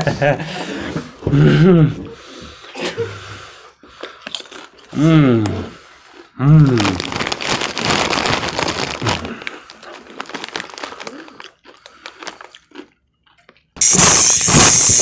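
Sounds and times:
chip bag crinkling: 4.2 - 4.9, 6.5 - 13.7
person humming: 5.0 - 5.8, 6.4 - 7.1.

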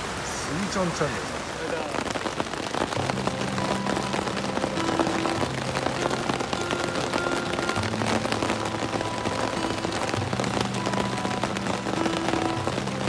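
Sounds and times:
rain on a tarp: 0.0 - 13.0
soft background music: 2.7 - 13.0.

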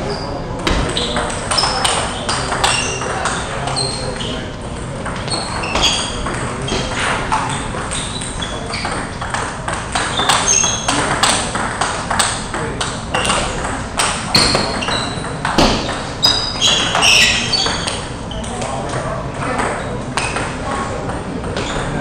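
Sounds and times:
table tennis balls clicking: 0.7 - 22.0.

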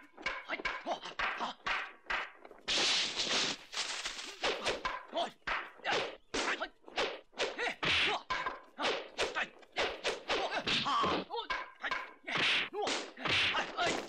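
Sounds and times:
fight whacks and swishes: 1.2 - 11.0.

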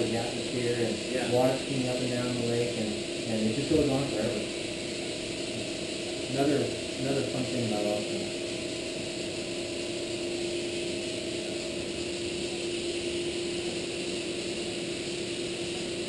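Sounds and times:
even hiss: 0.0 - 8.4
machine hum: 0.0 - 16.0.

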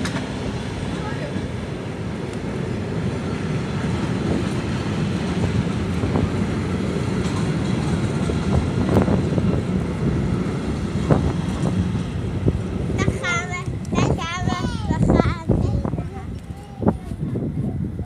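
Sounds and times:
train wheels rumbling on rails: 0.0 - 18.0.

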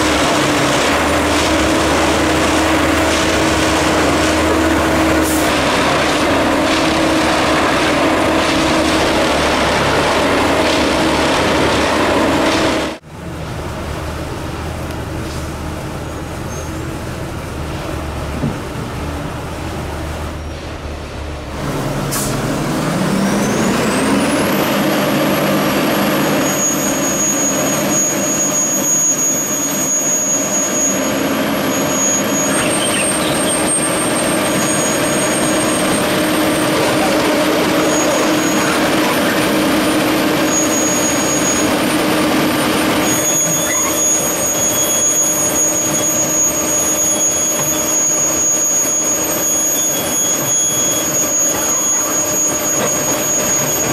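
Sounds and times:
high whine: 22.3 - 53.9
machine engine running: 30.0 - 48.8.

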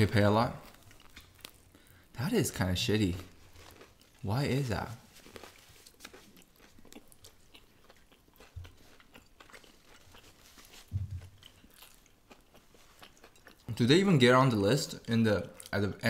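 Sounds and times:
person chewing crunchy food: 0.5 - 2.1, 2.9 - 13.9.

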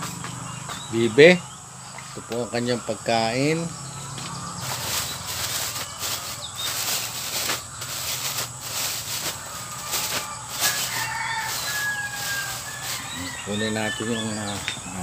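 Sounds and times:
plastic bag crinkling: 4.6 - 13.8.

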